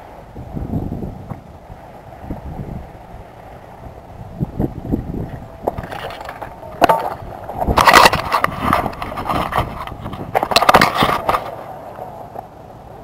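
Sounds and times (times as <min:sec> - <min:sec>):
camera handling scraping and knocking: 0:05.6 - 0:11.7.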